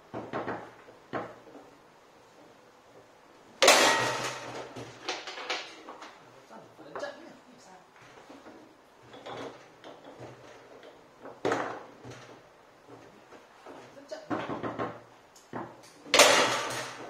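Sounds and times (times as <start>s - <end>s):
foosball knocking off table walls: 0.0s - 1.7s, 3.6s - 6.2s, 9.1s - 12.4s, 14.3s - 17.0s.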